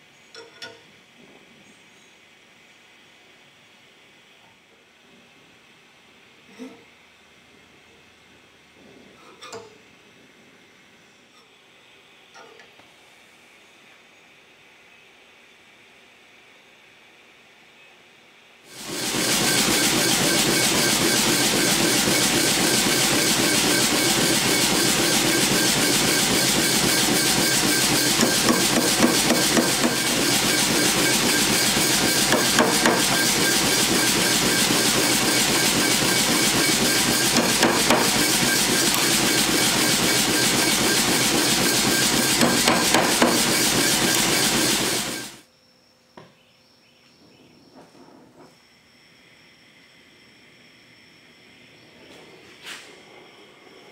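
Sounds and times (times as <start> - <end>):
loud steady hiss: 13.0 - 45.6
hammer blows on hot steel: 18.7 - 45.2.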